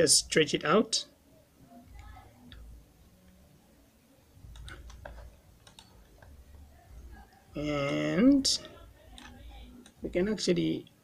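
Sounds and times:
low background hum: 0:00.0 - 0:11.0
computer mouse clicks: 0:04.4 - 0:06.4, 0:09.1 - 0:10.0.

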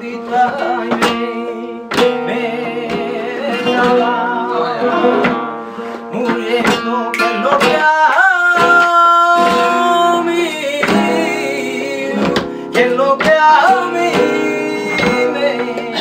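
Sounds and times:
flamenco guitar: 0:00.0 - 0:16.0
sharp handclaps: 0:06.6 - 0:09.6.

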